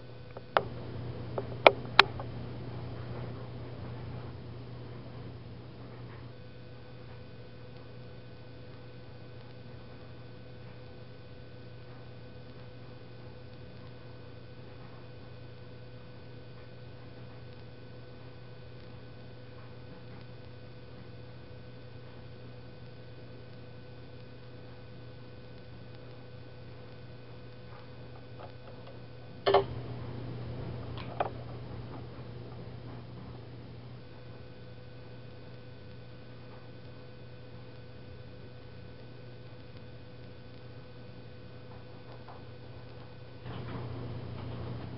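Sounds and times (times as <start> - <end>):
faint thin whine: 0.0 - 44.9
low electrical hum: 0.0 - 44.9.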